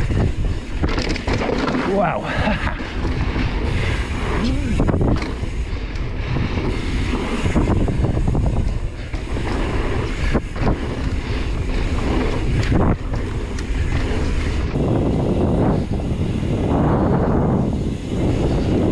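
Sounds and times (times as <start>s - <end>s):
tyres rolling over dirt: 0.0s - 17.1s
bike rattling: 0.0s - 18.9s
wind buffeting microphone: 0.0s - 18.9s
bike knocking over bumps: 0.7s - 3.7s.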